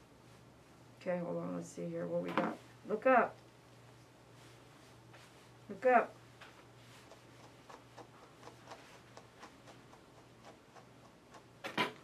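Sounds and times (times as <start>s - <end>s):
brush strokes through dog fur: 4.3s - 5.6s, 6.5s - 9.7s.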